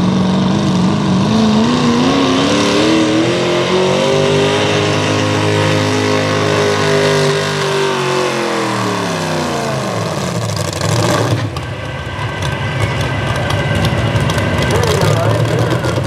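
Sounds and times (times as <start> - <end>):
engine winding down to idle: 11.3 - 16.0.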